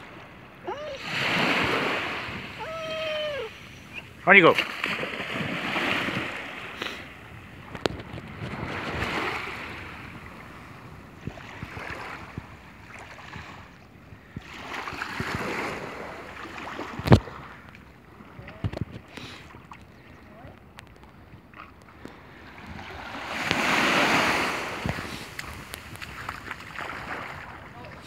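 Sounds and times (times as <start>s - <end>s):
wind on microphone: 0.0s - 4.2s, 5.3s - 17.6s, 22.3s - 28.0s
small waves lapping: 0.0s - 28.0s.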